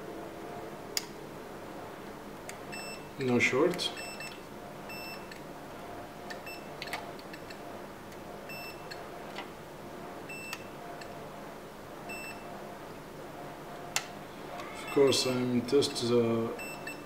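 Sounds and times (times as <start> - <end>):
multimeter short high beeps: 2.7 - 3.1, 4.0 - 5.3, 16.6 - 17.0.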